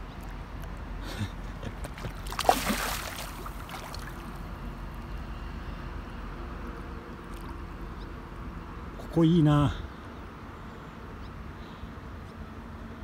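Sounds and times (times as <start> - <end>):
low outdoor background: 0.0 - 13.0
pond water splashing: 1.5 - 4.6.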